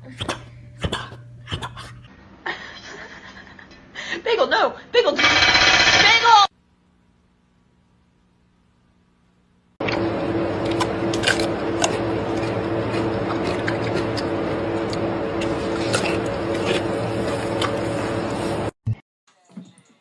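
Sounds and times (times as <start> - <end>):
steady low hum: 0.0 - 18.8
gorilla chewing food: 10.7 - 17.8.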